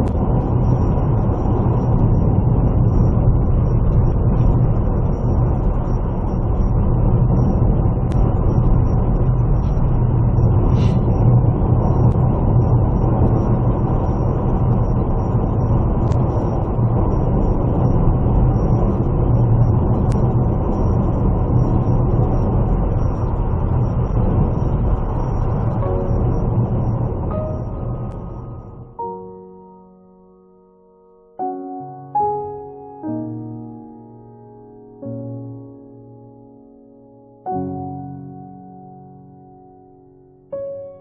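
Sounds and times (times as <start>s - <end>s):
vehicle engine and tyre rumble: 0.0s - 29.0s.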